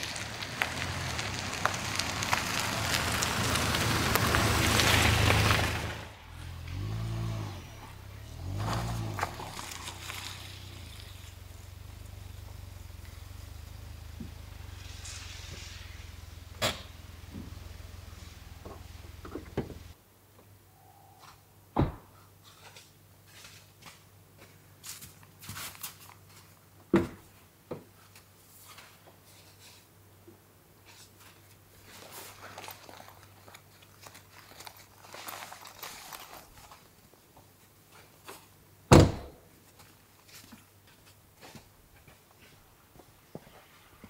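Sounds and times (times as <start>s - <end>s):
dull thunks: 18.6s - 19.9s, 21.8s - 22.1s, 38.9s - 39.4s.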